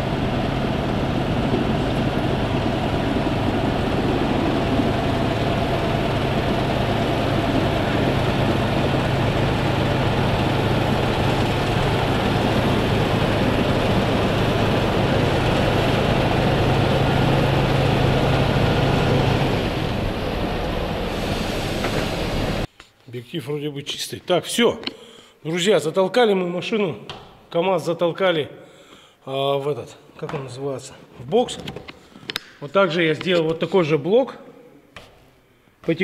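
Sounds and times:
heavy diesel engine running: 0.0 - 22.7.

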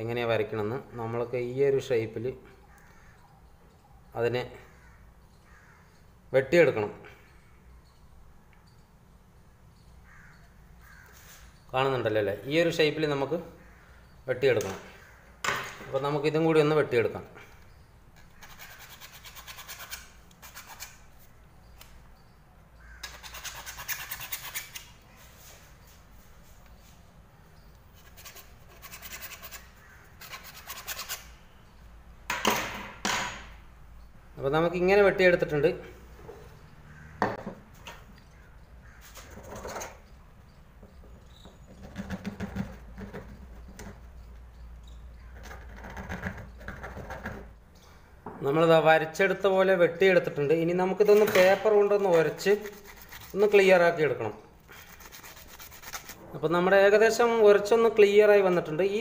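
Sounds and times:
knife scraping plastic pipe: 54.7 - 56.2.

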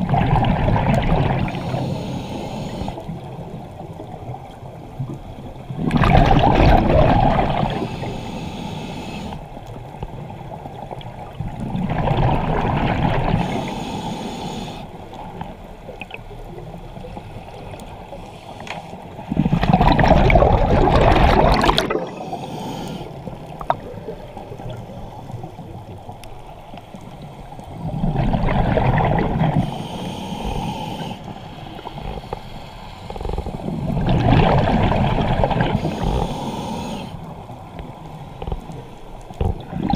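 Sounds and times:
bubbles gurgling underwater: 0.0 - 1.8, 3.8 - 7.9, 10.6 - 13.6, 19.2 - 22.3, 27.7 - 29.8, 33.2 - 36.3, 39.3 - 39.9
diver breathing through regulator: 1.4 - 3.3, 7.4 - 9.5, 13.2 - 15.1, 18.0 - 19.9, 21.2 - 23.7, 29.5 - 34.2, 35.2 - 39.1.

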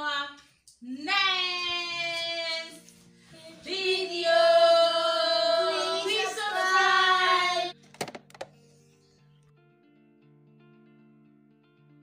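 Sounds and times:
woman and children singing: 1.0 - 7.7
soft background music: 1.1 - 11.3.

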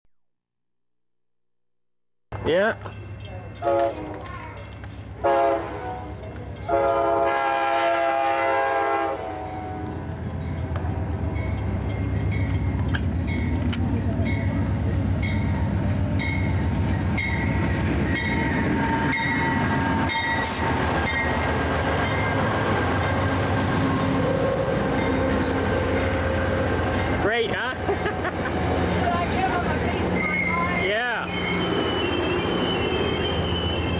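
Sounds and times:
train rumbling past: 2.3 - 33.9
crossing bell dinging: 2.4 - 5.0, 9.5 - 27.6
locomotive horn blasts: 3.6 - 4.2, 5.2 - 9.9.

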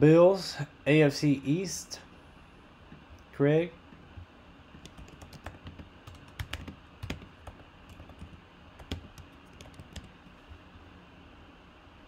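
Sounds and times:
computer keyboard typing: 4.7 - 10.2.

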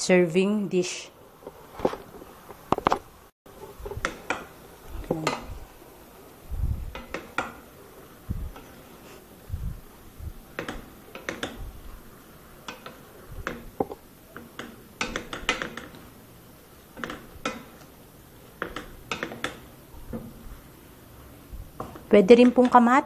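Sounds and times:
wooden spatulas clacking on a pan: 12.6 - 16.0, 17.0 - 17.8, 18.6 - 19.7.

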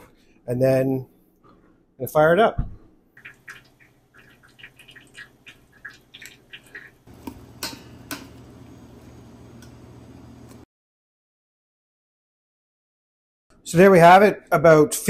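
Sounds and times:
steady low hum: 7.1 - 10.6.

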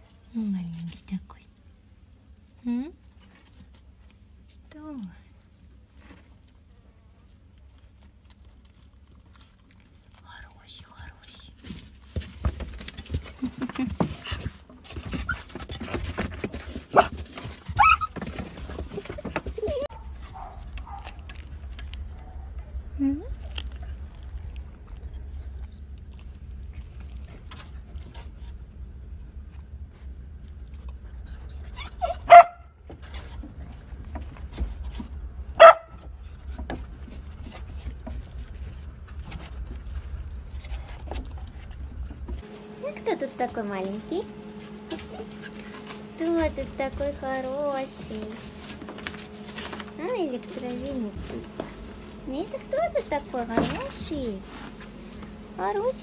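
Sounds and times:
dog yelping: 16.9 - 23.0, 31.4 - 32.7, 35.6 - 36.0, 44.8 - 45.8
young dog barking: 19.8 - 21.3, 32.0 - 32.7, 35.6 - 36.0
low rumble: 20.1 - 31.8
dog rustling in straw: 42.4 - 56.0.

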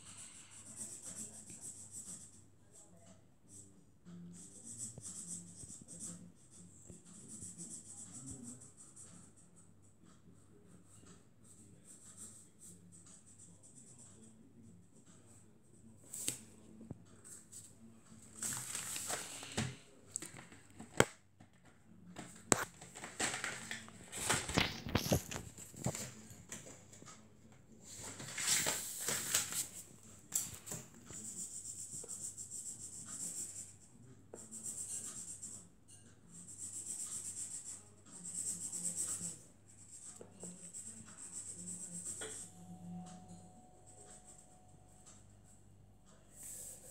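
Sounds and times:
felt-tip marker scratching paper: 0.0 - 2.9, 4.3 - 10.2, 34.4 - 35.6, 36.3 - 42.6.

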